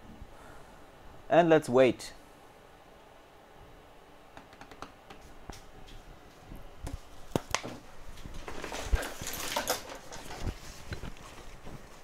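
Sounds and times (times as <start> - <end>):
clicks and knocks at workbench: 4.4 - 5.2.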